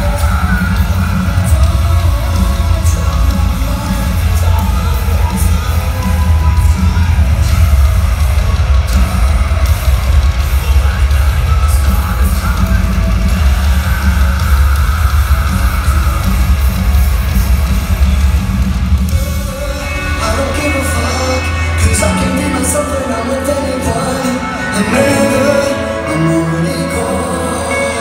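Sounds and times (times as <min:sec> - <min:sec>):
live metal band playing: 0:00.0 - 0:28.0.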